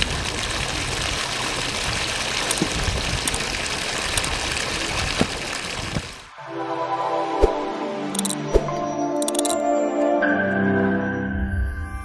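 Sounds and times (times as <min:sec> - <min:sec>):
water gushing into puddle: 0:00.0 - 0:06.3.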